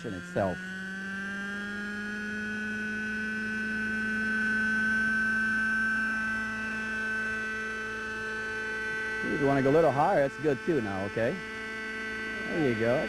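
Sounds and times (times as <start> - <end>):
model helicopter engine and rotor: 0.0 - 13.0.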